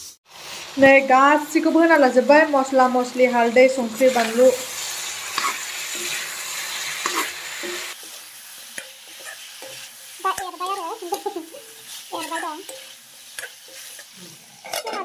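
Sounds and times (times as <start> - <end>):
chicken sizzling in a pan: 0.0 - 15.0
steel spatula scraping pan: 4.1 - 15.0.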